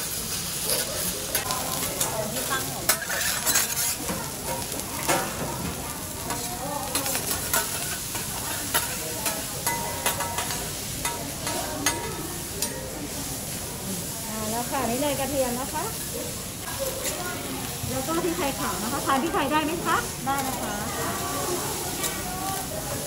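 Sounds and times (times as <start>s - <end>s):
food sizzling on a griddle: 0.0s - 23.0s
metal spatulas scraping: 0.6s - 5.5s, 6.2s - 13.2s.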